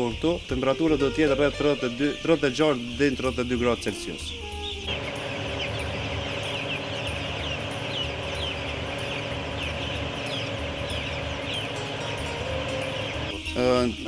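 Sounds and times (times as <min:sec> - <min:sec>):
chicks peeping: 0:00.0 - 0:14.0
steady low hum: 0:04.8 - 0:14.0.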